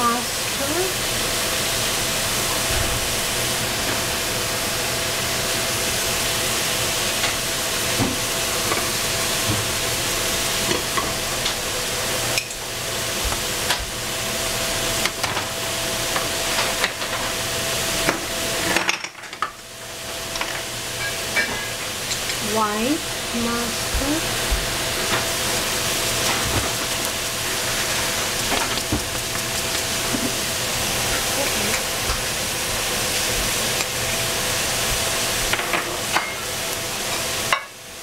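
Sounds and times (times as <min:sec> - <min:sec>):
vegetables sizzling in a pan: 0:00.0 - 0:38.0.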